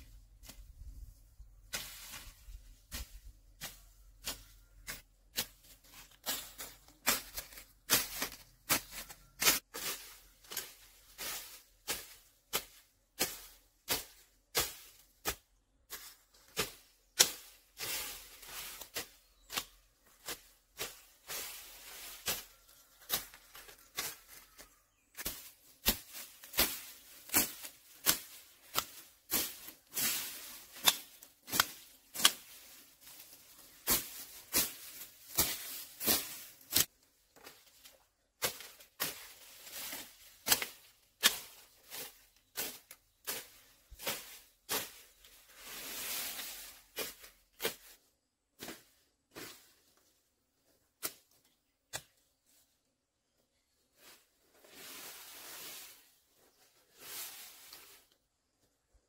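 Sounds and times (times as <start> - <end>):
blade chopping bamboo: 30.7 - 32.6.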